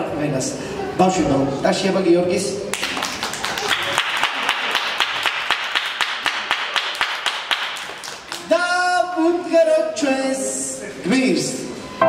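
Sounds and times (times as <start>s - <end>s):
group of people clapping: 2.7s - 8.6s.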